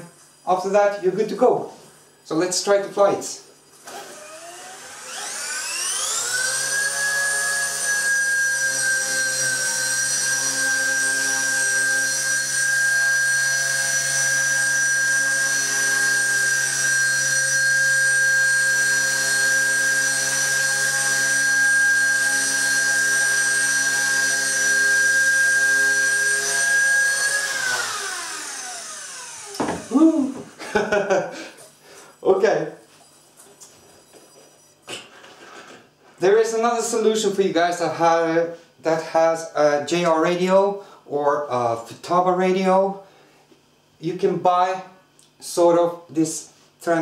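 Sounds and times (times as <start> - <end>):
rc helicopter motor whining: 3.8 - 30.4.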